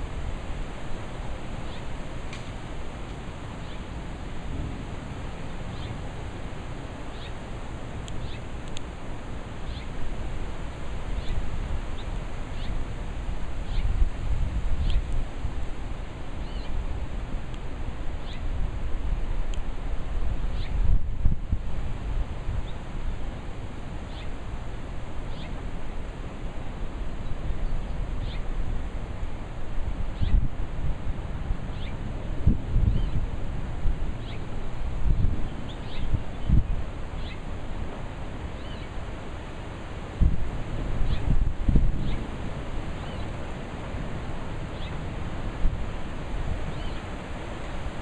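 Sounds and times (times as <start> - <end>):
gusty wind on microphone: 0.0 - 48.0
steady hiss: 0.0 - 48.0
tree leaves rustling: 0.0 - 48.0
bird chirping: 3.6 - 3.9, 5.7 - 6.0, 7.1 - 7.4, 8.2 - 8.5, 9.6 - 9.9, 12.0 - 12.8, 13.7 - 13.9, 25.3 - 25.6, 28.2 - 28.4, 37.2 - 37.4.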